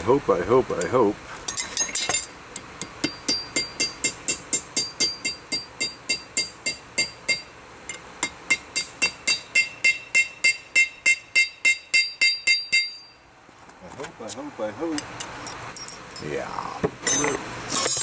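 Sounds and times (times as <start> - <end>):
hammer ringing on hot metal: 1.8 - 13.2.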